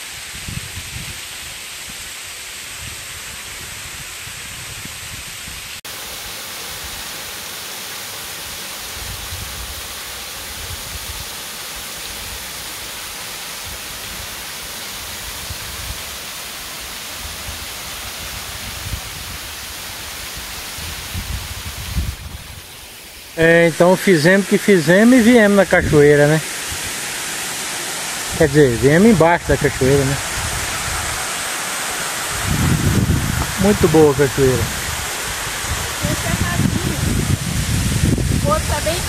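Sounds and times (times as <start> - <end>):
wind gusts on microphone: 0.0 - 2.1, 2.7 - 5.8, 8.9 - 11.4, 17.1 - 22.8, 25.6 - 27.1, 28.1 - 39.0
waterfall pouring: 5.9 - 39.0.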